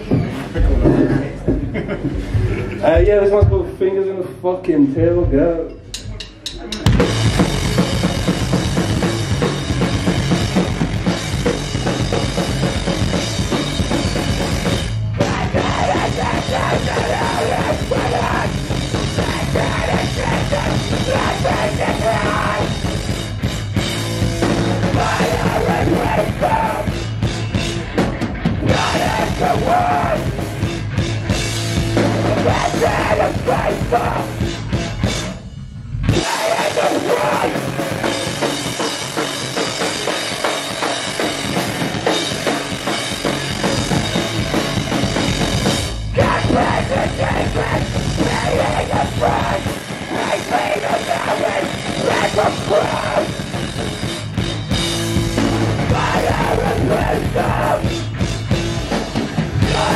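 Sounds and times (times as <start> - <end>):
bass guitar: 0.0 - 3.8, 4.8 - 59.9
pounding drums: 6.7 - 35.4, 36.0 - 59.9
distorted electric guitar: 6.8 - 59.9
person yelling vocals: 15.2 - 22.7, 28.7 - 30.3, 46.2 - 53.4.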